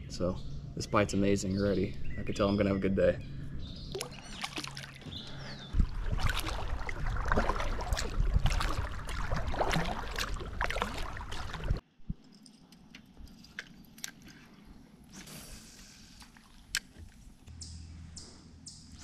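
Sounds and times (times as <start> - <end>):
low rumble: 5.1 - 12.2.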